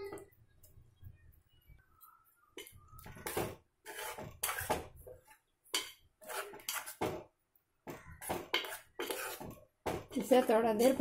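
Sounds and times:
spoon scraping metal pot: 2.6 - 7.2, 8.2 - 9.6, 10.2 - 11.0.

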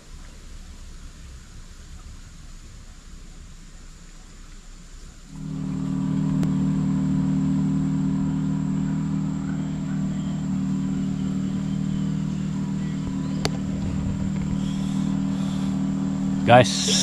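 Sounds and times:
motor running steadily: 5.1 - 17.0.

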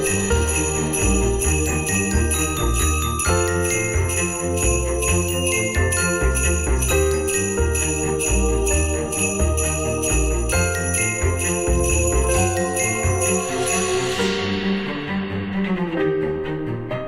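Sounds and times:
music with shaking sleigh bells: 0.0 - 15.2.

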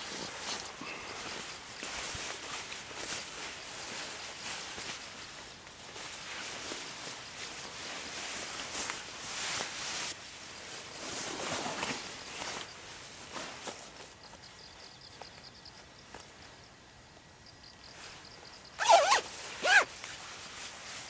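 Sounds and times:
nylon jacket rustling: 0.0 - 14.0, 18.8 - 21.0
faint pulsing insect trill: 0.0 - 21.0
zipper handling: 18.8 - 19.9.

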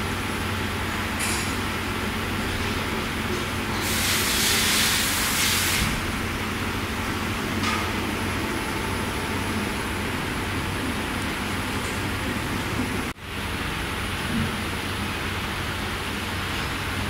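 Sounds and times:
loud hiss: 3.7 - 7.0.

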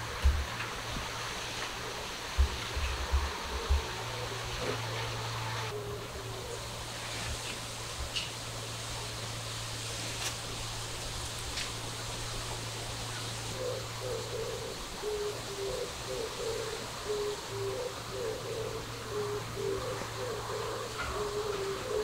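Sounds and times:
outdoor hiss: 0.0 - 22.0
bird cooing: 1.6 - 7.0, 13.5 - 22.0.

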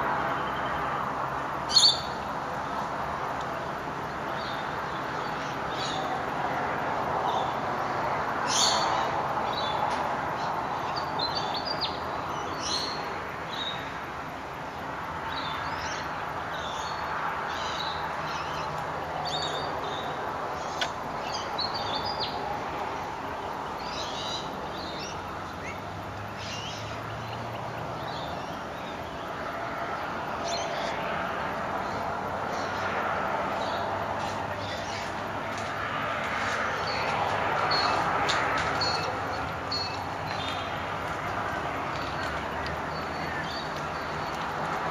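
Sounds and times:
steady background noise: 0.0 - 44.9
birds chirping and whistling: 1.7 - 2.2, 38.7 - 40.7.

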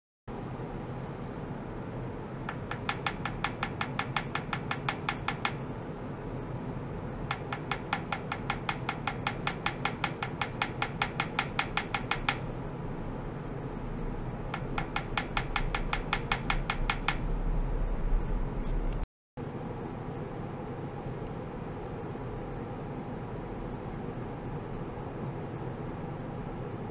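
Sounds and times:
wooden hammer tapping metal tray: 2.5 - 5.6, 7.3 - 12.4, 14.5 - 17.2
low hum: 16.8 - 19.0.

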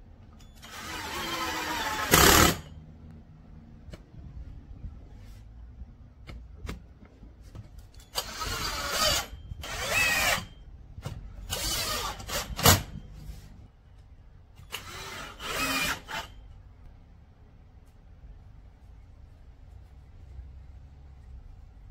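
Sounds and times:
drill driving screws: 0.6 - 2.7, 8.1 - 10.5, 11.5 - 12.9, 14.7 - 16.4.

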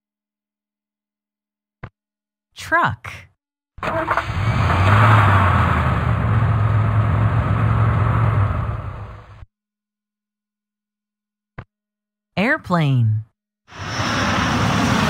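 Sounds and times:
truck engine humming: 4.2 - 9.4.

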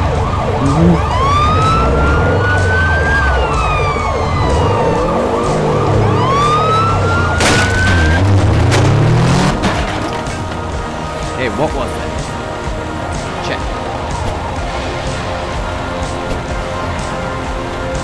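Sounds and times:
siren wailing: 0.0 - 9.5
engine revving: 0.0 - 11.4
siren warbling fast: 0.3 - 8.4
sharp bangs: 7.3 - 10.6.

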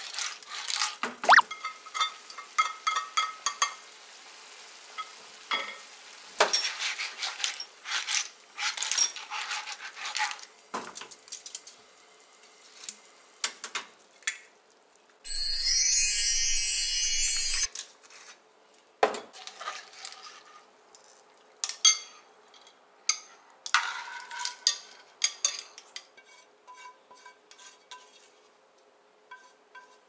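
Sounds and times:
light sizzle: 1.3 - 7.7, 15.0 - 17.7.

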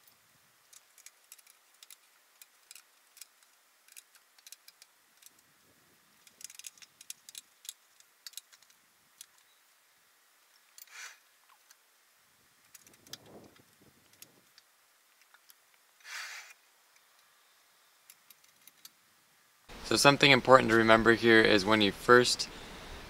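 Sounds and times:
faint small clicks and ticks: 0.0 - 5.5, 6.2 - 9.6, 12.6 - 15.8, 18.0 - 19.0
soft hiss: 0.0 - 23.0.

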